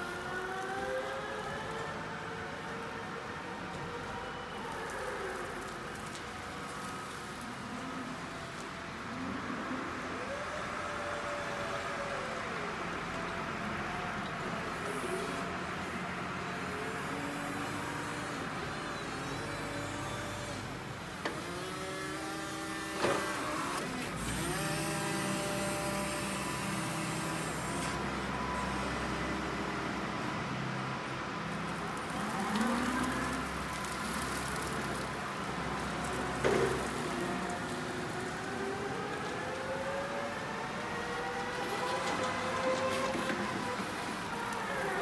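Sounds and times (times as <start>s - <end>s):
electric forklift motor whine: 16.5s - 30.3s.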